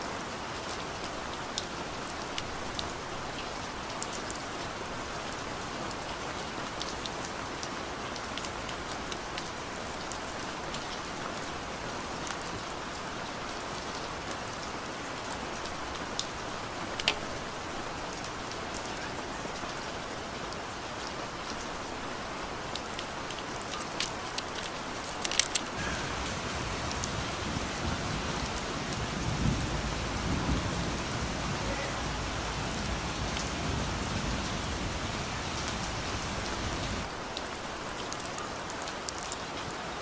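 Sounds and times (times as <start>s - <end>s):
rain falling: 0.0s - 40.0s
thunder rumbling: 25.8s - 37.1s.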